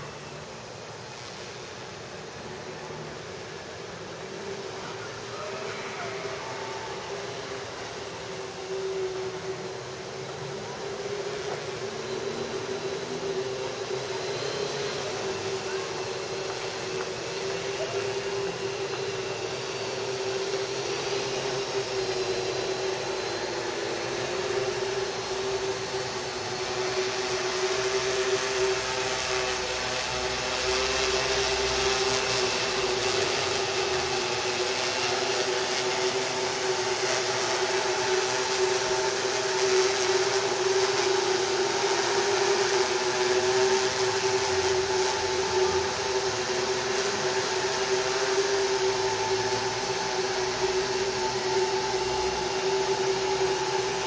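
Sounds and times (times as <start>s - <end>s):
drone motors humming: 0.0s - 54.0s
propeller whirring hiss: 0.0s - 54.0s.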